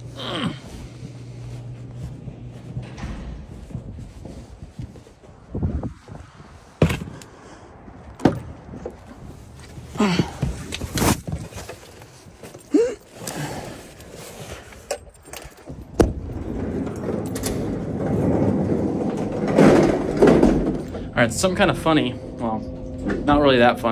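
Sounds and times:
door: 2.8 - 3.6.

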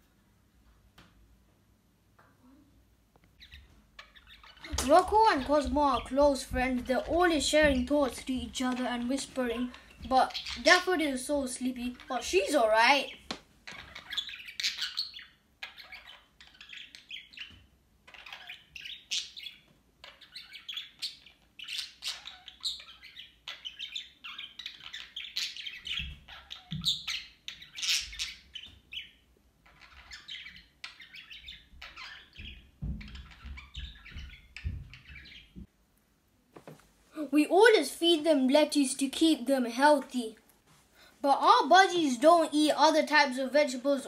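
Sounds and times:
budgerigars chattering and warbling: 3.4 - 35.6.

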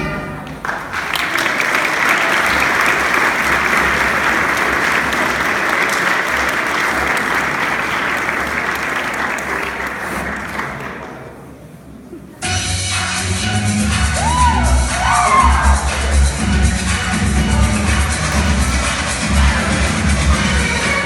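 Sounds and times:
music: 0.0 - 0.8, 12.4 - 21.0
audience applauding: 0.5 - 11.5.

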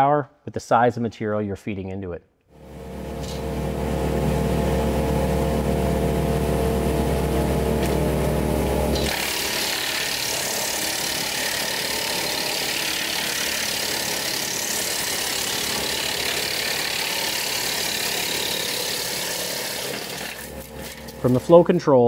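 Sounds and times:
wood chipper chipping log: 7.1 - 21.4.

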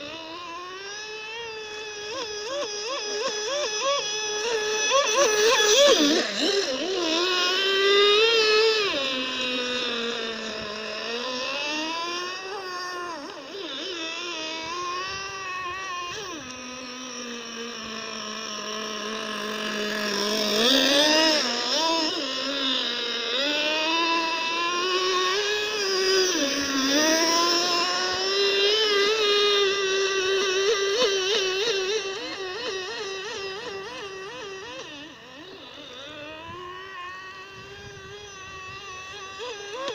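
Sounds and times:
model boat engine revving: 0.0 - 39.9.

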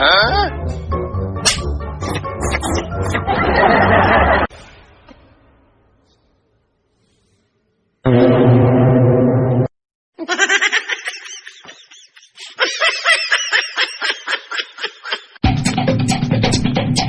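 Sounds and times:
music: 0.0 - 4.5, 15.4 - 17.0
person giggling: 10.2 - 15.4.

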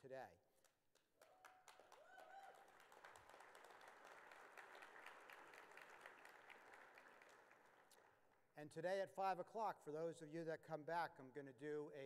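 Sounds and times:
audience applause: 1.4 - 7.9
audience cheer: 1.7 - 2.9.

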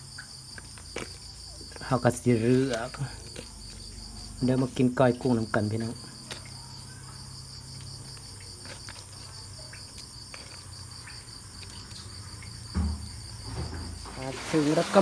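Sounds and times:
crickets trilling: 0.0 - 15.0
low thump: 12.7 - 14.1.

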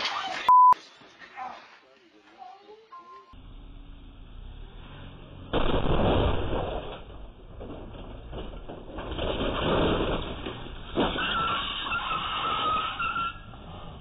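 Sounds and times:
car engine racing: 3.4 - 5.7
car crashing into brick: 5.5 - 13.0
tyres spinning on concrete: 6.6 - 14.0.

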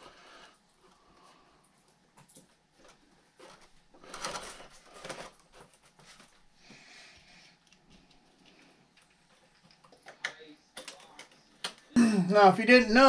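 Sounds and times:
plastic and foam scraping: 2.8 - 6.5.

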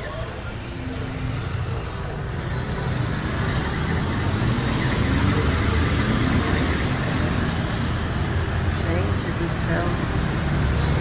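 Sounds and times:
vehicle engine running: 0.9 - 11.0.

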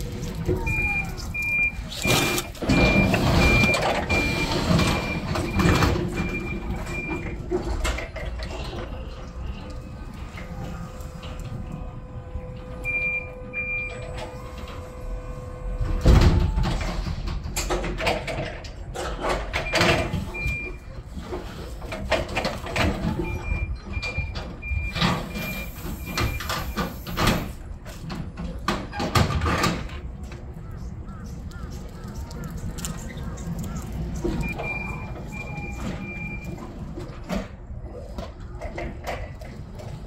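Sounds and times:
forklift reversing alarm beeps: 0.5 - 7.4, 10.8 - 17.0, 19.6 - 20.9, 22.8 - 27.5, 34.3 - 36.9.

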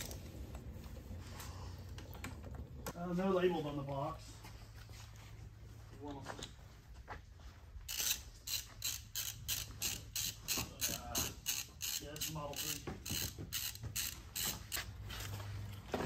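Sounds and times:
ratchet wrench clicking: 7.9 - 14.9.

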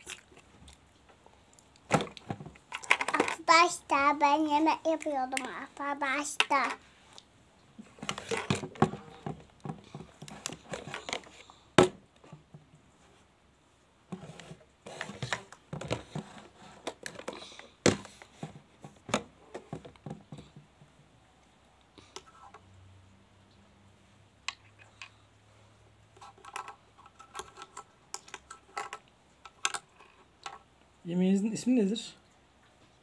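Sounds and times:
plastic toy pieces clicking and knocking: 2.0 - 3.5, 4.9 - 6.8, 26.2 - 30.6.

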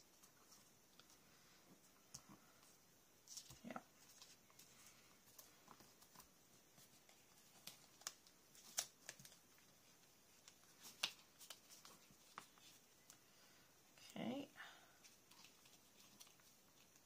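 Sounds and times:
paper rustling and ticking: 3.3 - 13.2.

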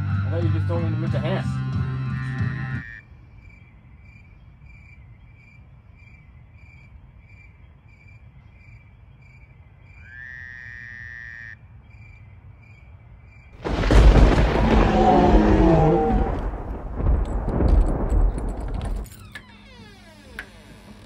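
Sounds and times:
crickets chirping: 2.2 - 16.1.

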